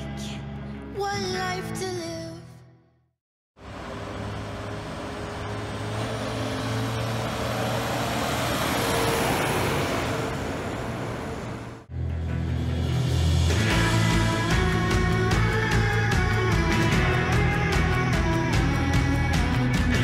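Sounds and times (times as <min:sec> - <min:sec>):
diesel farm vehicles passing: 0:03.6 - 0:11.9.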